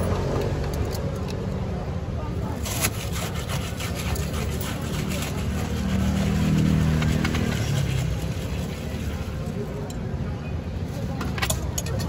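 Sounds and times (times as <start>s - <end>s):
spoon stirring ice in plastic cup: 2.6s - 9.9s.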